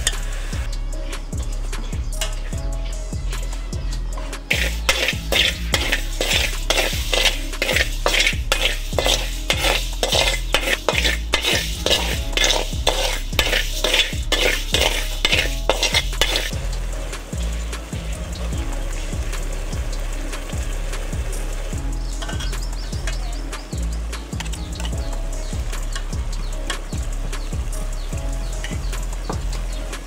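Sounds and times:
metal spatula scraping wok: 0:00.0 - 0:18.2, 0:21.5 - 0:23.7
rice grains rattling: 0:04.5 - 0:18.0.

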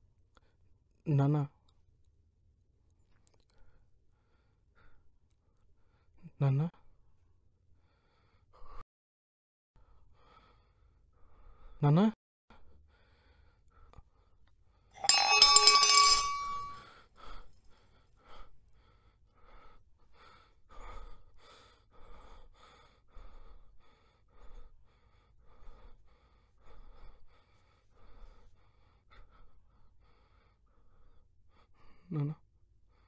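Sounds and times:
metal tumbler clattering on floor: 0:15.0 - 0:16.8.

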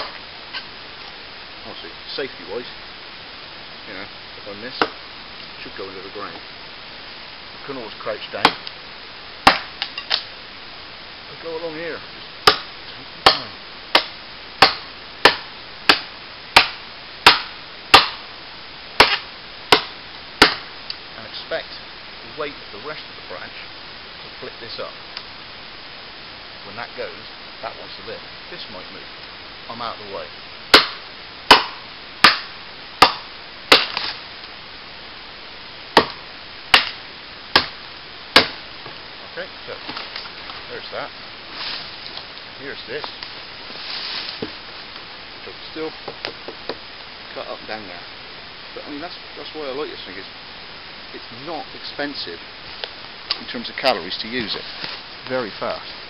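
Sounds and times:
machete chopping wood: 0:08.4 - 0:08.6, 0:09.5 - 0:10.3, 0:12.4 - 0:18.2, 0:19.0 - 0:20.7, 0:30.7 - 0:34.2, 0:36.0 - 0:37.0, 0:37.6 - 0:37.8, 0:38.4 - 0:38.6.

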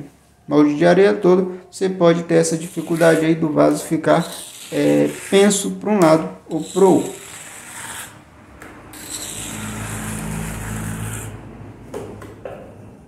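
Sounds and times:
trowel scraping wet cement: 0:02.5 - 0:05.8, 0:06.5 - 0:08.2, 0:08.9 - 0:11.4.

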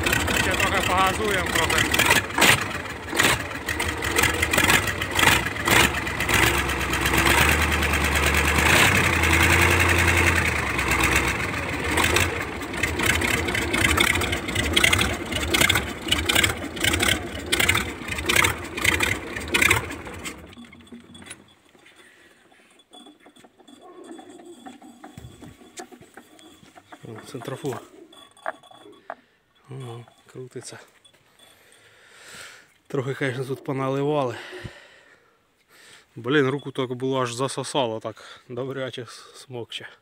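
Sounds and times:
diesel engine knocking and revving: 0:00.0 - 0:21.4.

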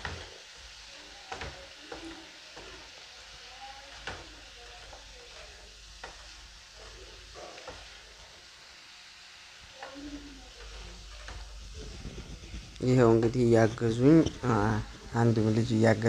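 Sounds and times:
paintbrush scraping and swishing: 0:10.7 - 0:15.7.

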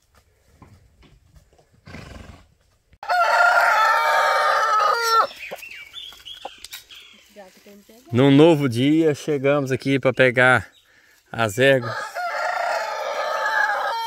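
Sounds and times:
rooster crowing: 0:03.0 - 0:05.3, 0:11.8 - 0:14.0.

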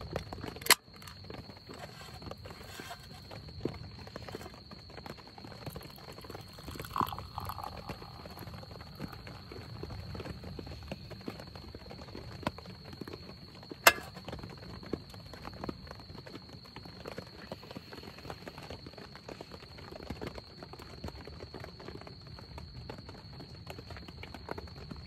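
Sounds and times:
rain pattering on tent: 0:00.0 - 0:06.4, 0:07.8 - 0:25.0
beer pouring into mug: 0:05.4 - 0:10.5, 0:13.9 - 0:14.2.

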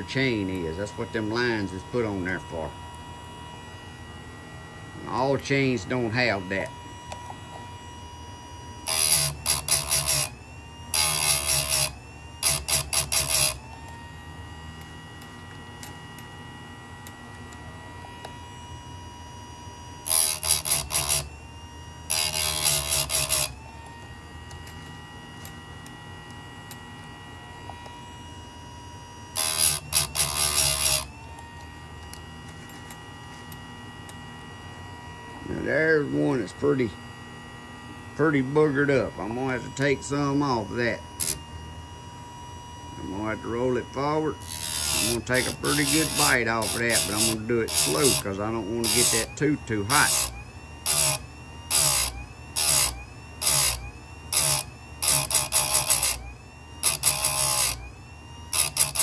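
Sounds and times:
grinding wheel humming: 0:00.0 - 0:59.0
grinder grinding chain teeth: 0:08.8 - 0:13.7, 0:20.0 - 0:21.3, 0:22.1 - 0:23.6, 0:29.3 - 0:31.2, 0:38.3 - 0:41.5, 0:43.0 - 0:56.2, 0:56.8 - 0:57.8, 0:58.5 - 0:59.0.

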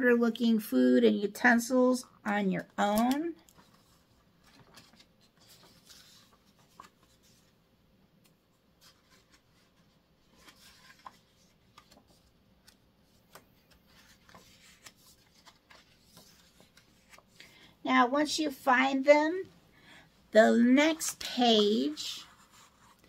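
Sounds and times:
soft rustles of book pages: 0:02.0 - 0:23.0
clicks handling picture book: 0:02.2 - 0:03.8.

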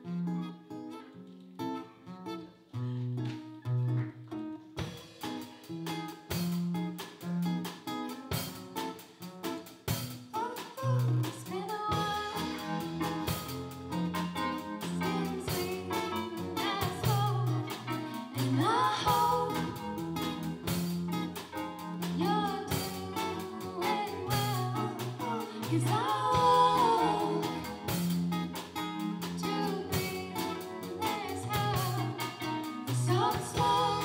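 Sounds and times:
acoustic guitar: 0:00.0 - 0:34.0
drum kit: 0:04.7 - 0:34.0
person singing: 0:10.4 - 0:20.5, 0:22.0 - 0:34.0
keyboard: 0:12.0 - 0:34.0.

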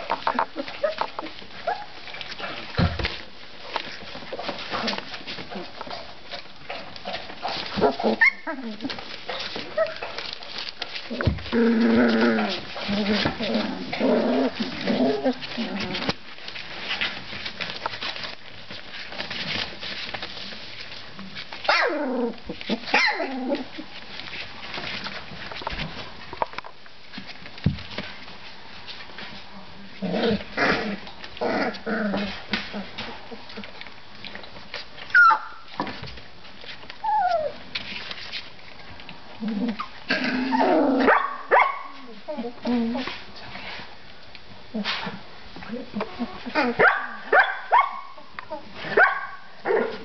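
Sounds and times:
puppy whimpering: 0:00.0 - 0:02.3, 0:07.8 - 0:10.2, 0:35.1 - 0:35.8, 0:37.0 - 0:37.6, 0:42.0 - 0:43.1, 0:48.2 - 0:48.7
paws scratching on newspaper: 0:00.0 - 0:40.1
puppy yelping: 0:00.2 - 0:02.0, 0:07.8 - 0:08.9, 0:21.6 - 0:23.6, 0:35.1 - 0:35.7, 0:37.0 - 0:37.6
puppy yelps: 0:00.4 - 0:02.0, 0:07.8 - 0:08.8, 0:21.7 - 0:22.0, 0:22.9 - 0:23.4, 0:35.1 - 0:35.7, 0:46.6 - 0:50.0
puppy yips: 0:08.2 - 0:08.5, 0:22.9 - 0:23.3, 0:35.1 - 0:35.7.

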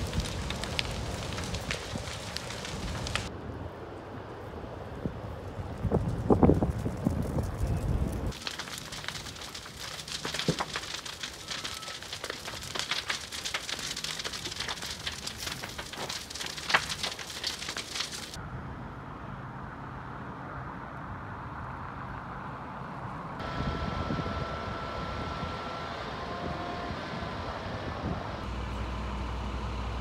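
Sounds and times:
fire crackling and popping: 0:00.0 - 0:03.3, 0:05.4 - 0:18.4
dull outdoor noise: 0:00.0 - 0:30.0.

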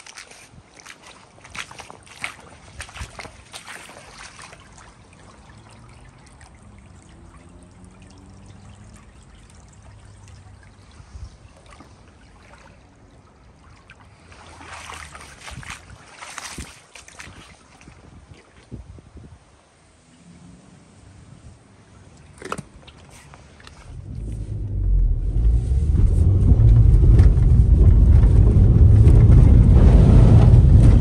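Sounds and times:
shallow water trickling: 0:00.0 - 0:18.2.

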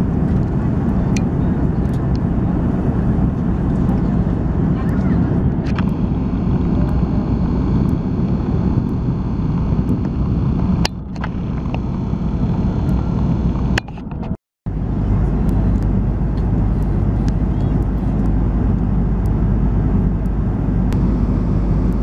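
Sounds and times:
aircraft cabin engine rush: 0:00.0 - 0:22.0.

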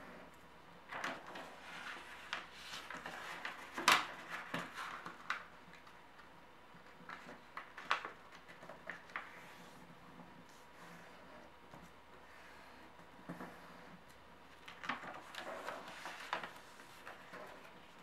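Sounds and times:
paper rustling and crinkling: 0:00.9 - 0:11.2, 0:14.5 - 0:18.0.

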